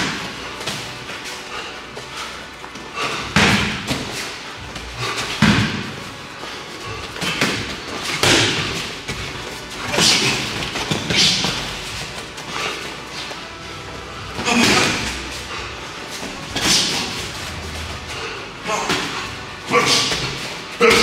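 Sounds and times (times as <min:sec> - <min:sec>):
punches and kicks hitting bodies: 0:03.3 - 0:04.2, 0:05.2 - 0:06.0, 0:07.0 - 0:12.0.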